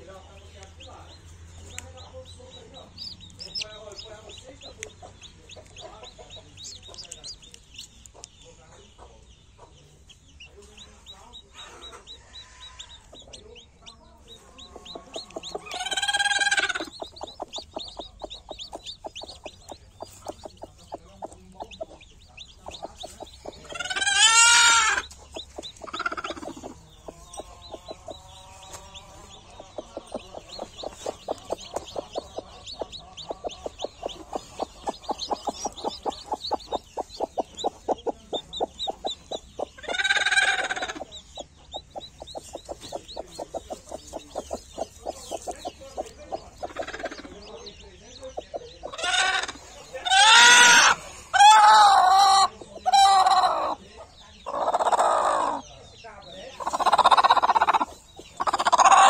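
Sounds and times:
chicks peeping: 0.0 - 59.0
hen clucking: 0.0 - 59.0
loud drawn-out chicken calls: 15.5 - 17.0, 23.5 - 27.5, 39.6 - 41.1, 48.9 - 53.8, 54.5 - 55.6, 56.7 - 59.0.

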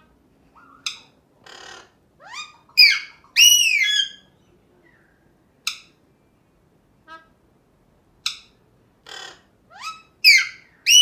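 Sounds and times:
parakeet screeching: 0.6 - 4.3, 9.1 - 11.0
parakeet chirps and whistles: 2.2 - 4.3, 9.8 - 11.0.

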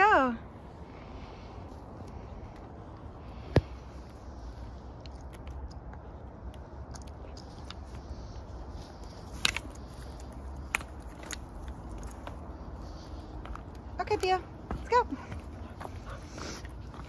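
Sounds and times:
dry twigs crackling and snapping: 5.0 - 12.6.

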